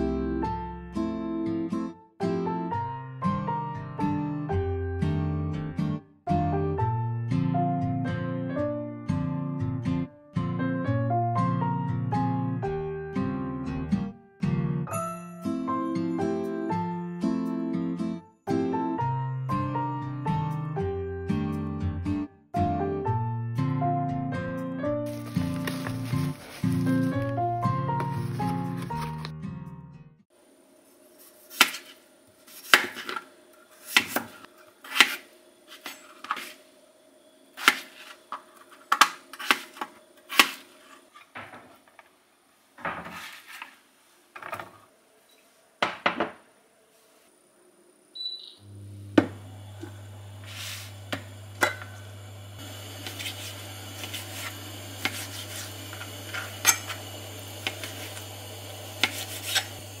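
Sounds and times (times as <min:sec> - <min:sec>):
steady low hum: 0:47.3 - 1:00.0.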